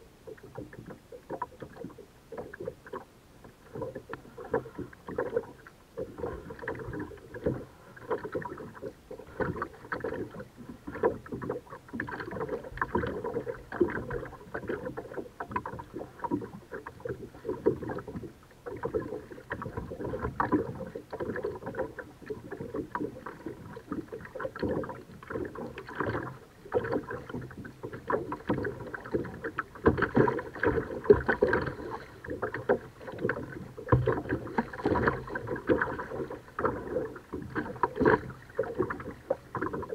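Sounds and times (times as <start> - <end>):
paddle splashing water: 0.0 - 39.9
water lapping at hull: 0.0 - 39.9.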